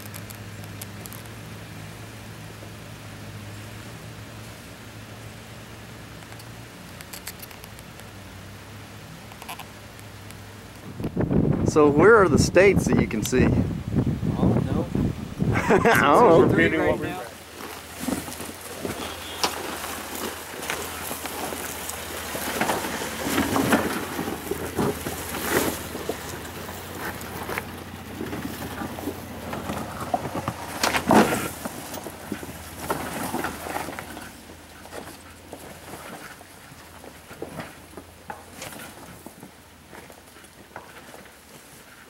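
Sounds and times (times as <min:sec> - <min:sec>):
low engine rumble: 0:00.0 - 0:42.0
tyres crunching on rock: 0:16.4 - 0:41.7.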